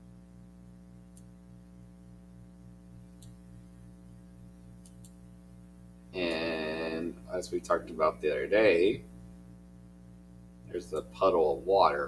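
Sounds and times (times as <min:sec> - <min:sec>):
low electrical hum with buzz: 0:00.0 - 0:12.0
faint computer mouse clicks: 0:01.1 - 0:01.3, 0:03.2 - 0:03.4, 0:04.8 - 0:05.2.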